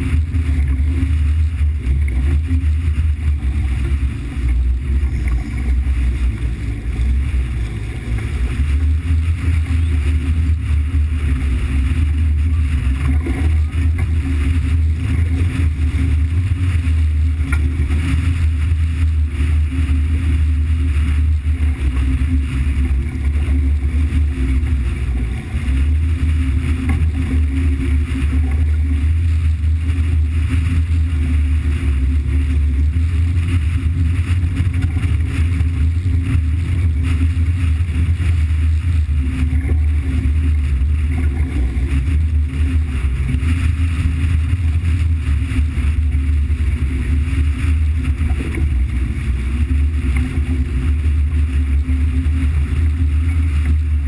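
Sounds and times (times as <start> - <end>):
engine running low drone: 0.0 - 54.0.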